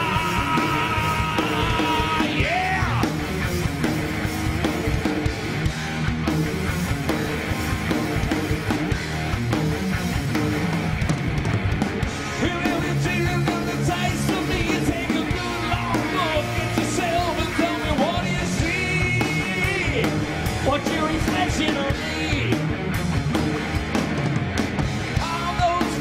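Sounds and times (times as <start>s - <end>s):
heavy metal band playing: 0.0s - 26.0s.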